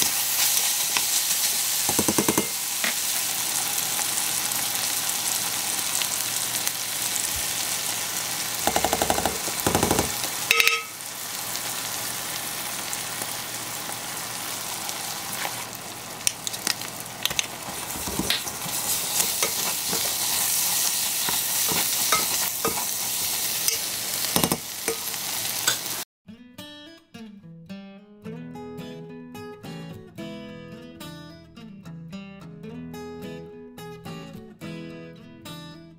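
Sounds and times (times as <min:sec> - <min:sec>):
meat sizzling in a pot: 0:00.0 - 0:26.1
spoon scraping and knocking: 0:01.9 - 0:03.0, 0:17.2 - 0:25.8.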